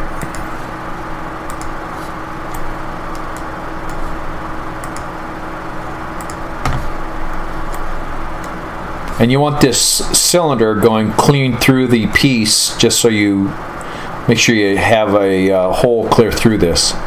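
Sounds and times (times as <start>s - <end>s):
background hum and hiss: 0.0s - 17.0s
computer mouse clicking: 1.5s - 1.8s, 4.8s - 5.1s, 6.2s - 6.8s.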